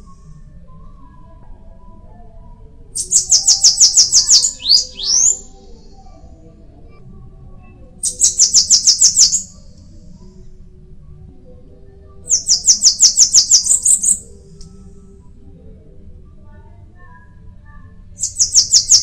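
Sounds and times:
bird singing high notes: 0:03.0 - 0:05.5, 0:08.1 - 0:09.6, 0:18.2 - 0:19.0.

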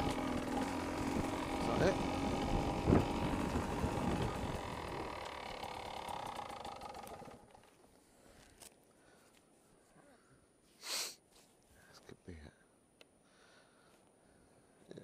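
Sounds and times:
two-stroke engine running: 0:00.0 - 0:07.8.

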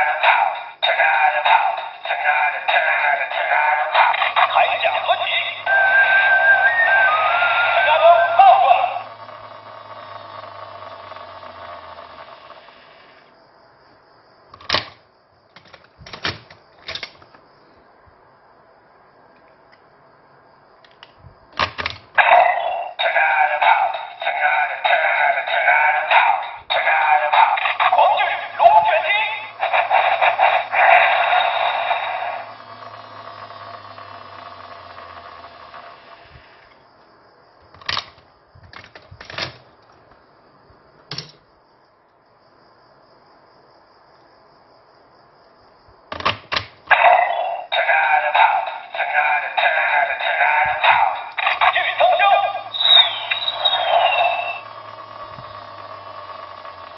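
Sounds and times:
toy electronic voice: 0:00.0 - 0:13.1, 0:22.2 - 0:36.6, 0:46.9 - 0:56.9
synthesized toy music: 0:00.0 - 0:13.2, 0:22.2 - 0:36.6, 0:46.9 - 0:56.9
plastic clicks: 0:14.6 - 0:17.4
electronic sound effect: 0:46.9 - 0:54.7.

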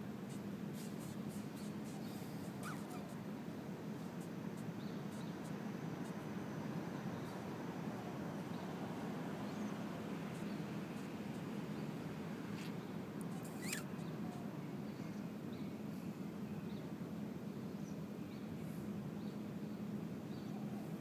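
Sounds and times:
low outdoor hum: 0:00.0 - 0:21.0
faint bird chirps: 0:00.8 - 0:03.2, 0:13.4 - 0:15.7
downward-sweeping bird chirp: 0:01.6 - 0:03.2, 0:13.5 - 0:14.1.

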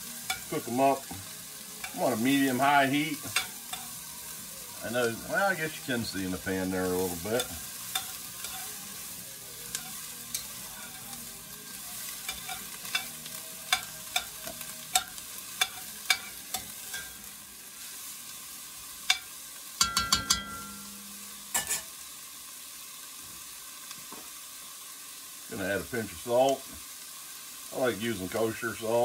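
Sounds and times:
vegetables sizzling in butter: 0:00.0 - 0:29.0
metal spoon scraping a pot: 0:07.4 - 0:08.8, 0:19.8 - 0:21.9.

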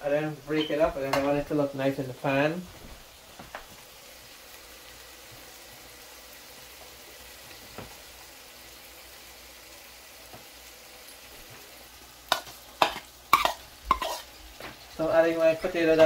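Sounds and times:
egg sizzling in a pan: 0:00.0 - 0:16.0.

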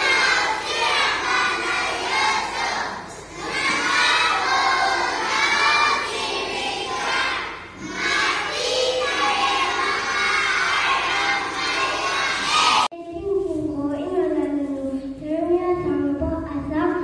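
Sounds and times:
children singing in unison: 0:00.0 - 0:12.9.

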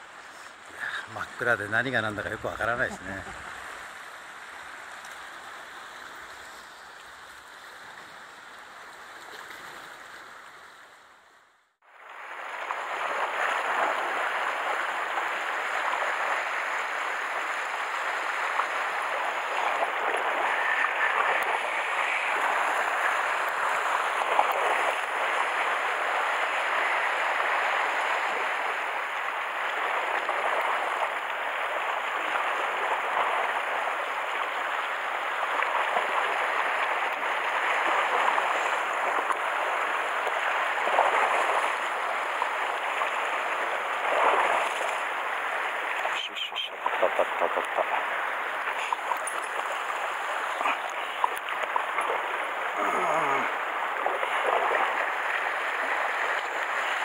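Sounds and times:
waves washing against rocks: 0:12.2 - 0:57.0.

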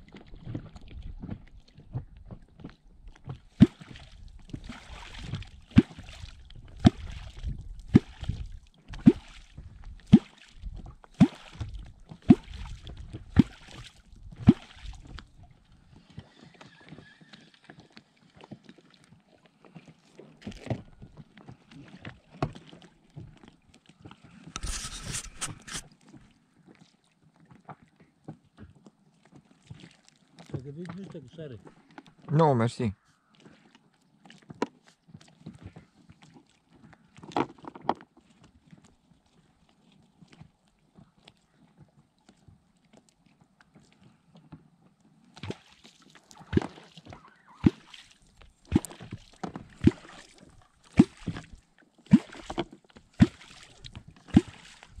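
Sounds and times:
brief loud rustle: 0:24.4 - 0:25.9.

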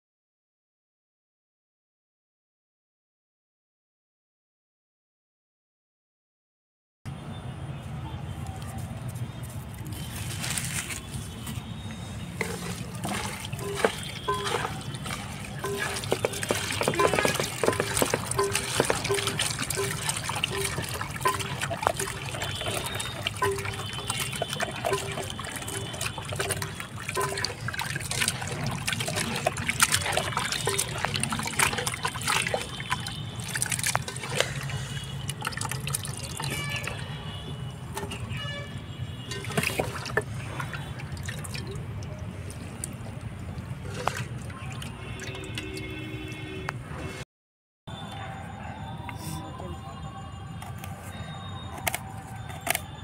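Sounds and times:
water trickling into metal pot: 0:11.1 - 0:46.3.

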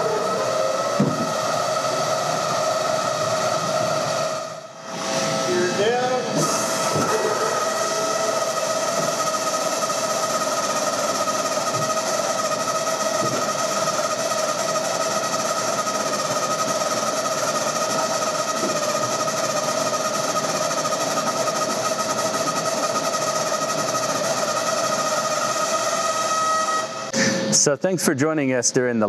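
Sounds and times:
hydraulic pump whining: 0:00.0 - 0:27.8.

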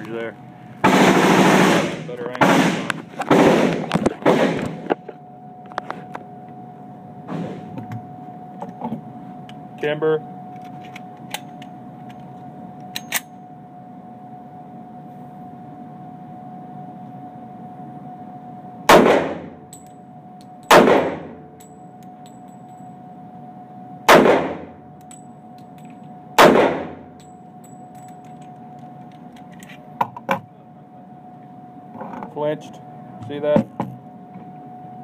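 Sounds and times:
pistol shots with echo: 0:18.9 - 0:19.5, 0:20.7 - 0:21.4, 0:24.1 - 0:24.7, 0:26.4 - 0:27.1.

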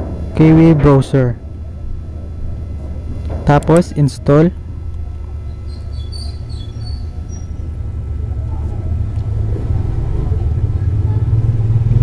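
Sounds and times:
motor vehicle engine rumbling: 0:00.0 - 0:12.0
faint high chirps: 0:05.0 - 0:07.7.

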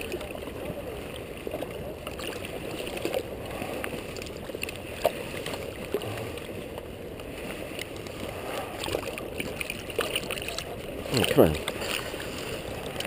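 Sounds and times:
river water lapping and gurgling: 0:00.0 - 0:13.0.

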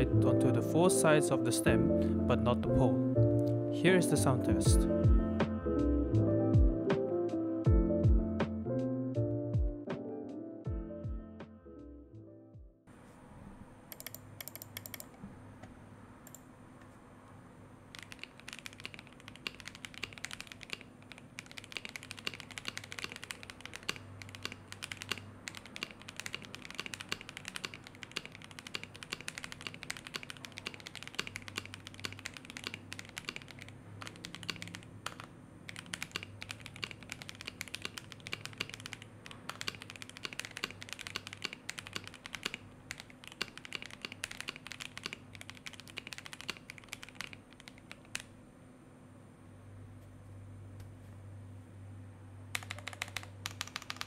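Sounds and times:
mechanical keyboard typing: 0:13.9 - 0:15.2, 0:17.9 - 0:48.3, 0:52.5 - 0:54.0.

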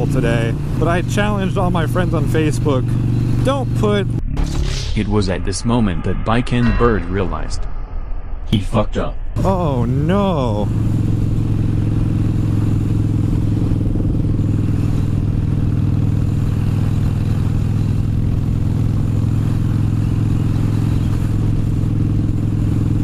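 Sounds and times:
motorcycle engine running: 0:00.0 - 0:04.4, 0:09.4 - 0:23.0.

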